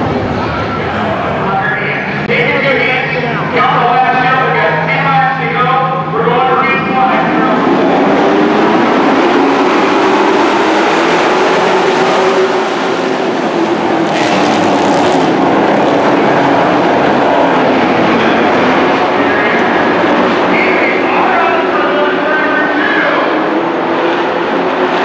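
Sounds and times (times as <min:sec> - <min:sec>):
race truck engines roaring: 0:00.0 - 0:25.0.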